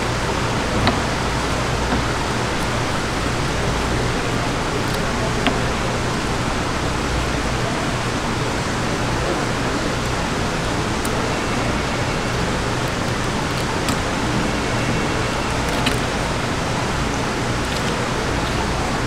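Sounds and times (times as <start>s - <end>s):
low hum: 0.0s - 19.0s
steady rushing noise: 0.0s - 19.0s.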